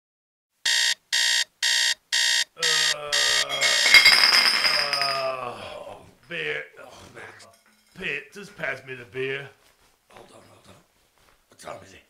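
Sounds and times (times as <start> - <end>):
alarm clock beeping: 0.7 - 4.2
man groaning: 2.6 - 4.0, 4.7 - 6.1.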